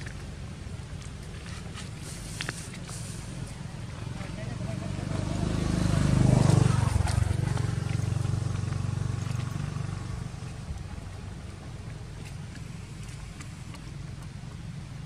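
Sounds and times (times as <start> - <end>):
vehicle engine passing: 2.9 - 11.9.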